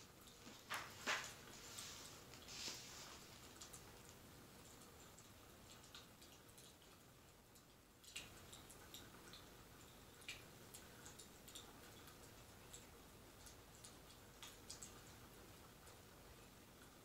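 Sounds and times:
wood fire crackling: 0.0 - 6.4
low steady hiss: 0.0 - 17.0.

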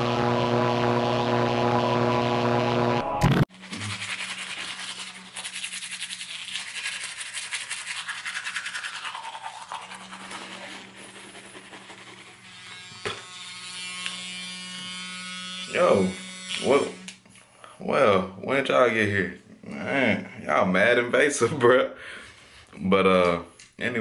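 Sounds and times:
toothbrush scrubbing teeth: 3.5 - 14.2.

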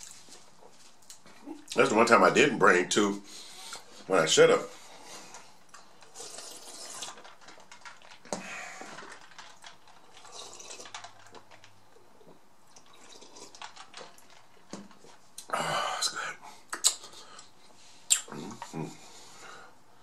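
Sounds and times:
wet mouth clicks: 16.7 - 17.2, 18.1 - 18.6
person swallowing: 18.1 - 19.0.

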